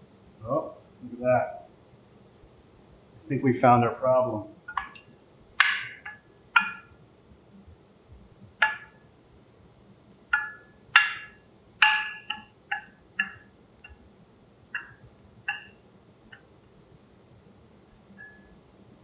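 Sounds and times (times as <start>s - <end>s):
window plate clinking on table: 5.6s - 6.9s, 8.6s - 9.0s, 10.4s - 13.5s.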